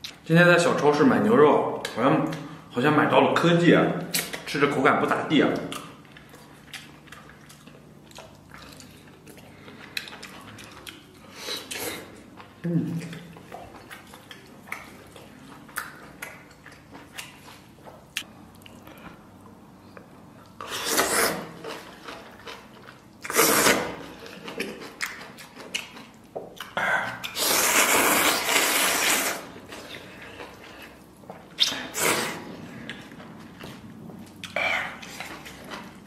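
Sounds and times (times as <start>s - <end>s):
wet chewing: 5.6s - 19.2s
noodles being slurped: 23.3s - 23.9s, 27.3s - 29.9s.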